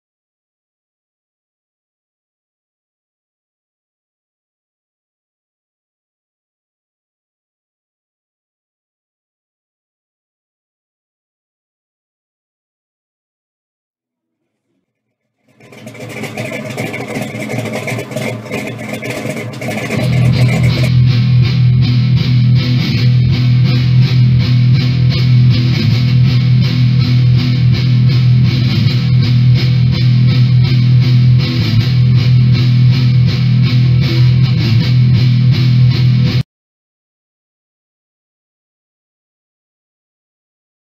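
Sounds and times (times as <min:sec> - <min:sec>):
guitar-driven rock music: 0:20.0 - 0:36.4.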